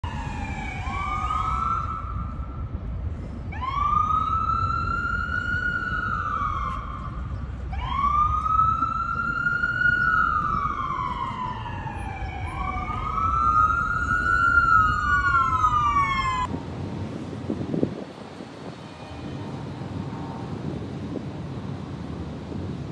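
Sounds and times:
second siren: 0:00.0 - 0:02.9, 0:03.5 - 0:16.5
emergency siren wailing: 0:00.0 - 0:16.5.

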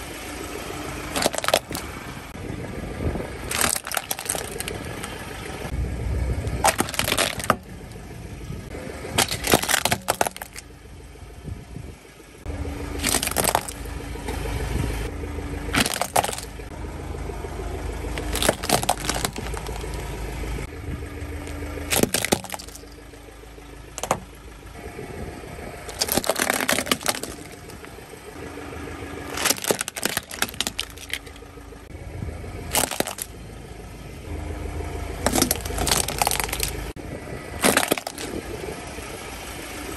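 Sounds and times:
car low rumble: 0:00.0 - 0:39.9
plastic cracking and snapping: 0:06.7 - 0:07.6, 0:15.8 - 0:16.5, 0:18.2 - 0:19.9, 0:21.9 - 0:22.8, 0:25.9 - 0:27.7, 0:29.4 - 0:31.4, 0:32.7 - 0:33.3, 0:35.2 - 0:36.8, 0:37.6 - 0:38.3.

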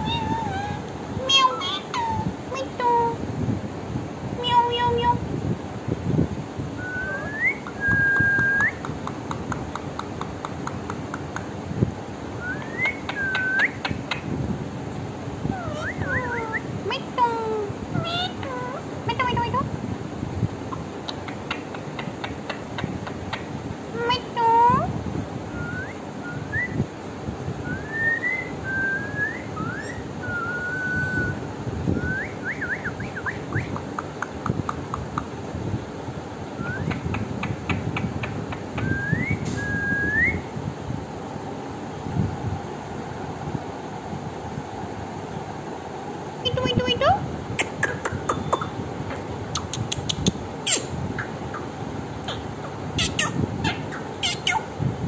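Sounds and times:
parakeet whistling: 0:00.0 - 0:02.2, 0:06.8 - 0:08.9, 0:12.4 - 0:14.2, 0:15.6 - 0:16.7, 0:27.8 - 0:31.4, 0:32.1 - 0:33.8, 0:53.0 - 0:54.7
parakeet clicks: 0:08.2 - 0:11.6, 0:21.1 - 0:23.5, 0:33.8 - 0:35.3, 0:36.9 - 0:38.9, 0:47.6 - 0:52.4.

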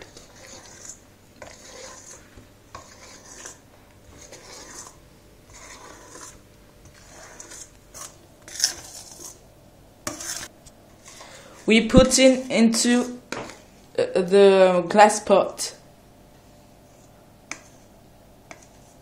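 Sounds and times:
spatula scraping steel bowl: 0:00.0 - 0:09.4, 0:10.0 - 0:13.2, 0:16.9 - 0:17.9, 0:18.5 - 0:19.0.

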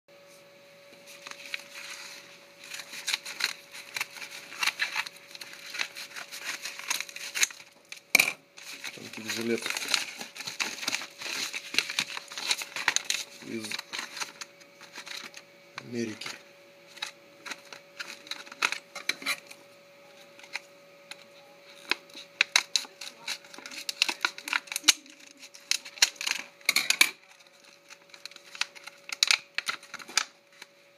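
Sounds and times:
plastic packaging crackling: 0:01.0 - 0:19.6, 0:21.7 - 0:30.8
scissors cutting envelope: 0:01.1 - 0:08.0, 0:08.6 - 0:19.6, 0:20.2 - 0:30.8
scissors snipping plastic: 0:21.8 - 0:30.3.

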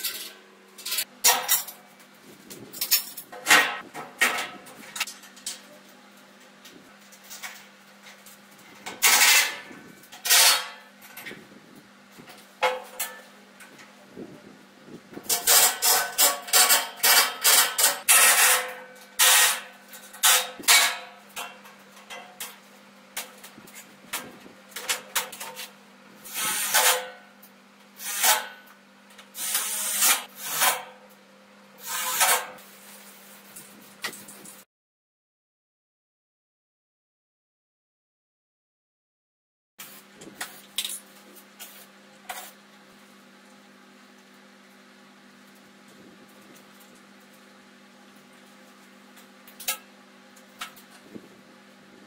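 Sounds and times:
scraping and clattering on metal: 0:00.0 - 0:01.9, 0:07.1 - 0:11.2.

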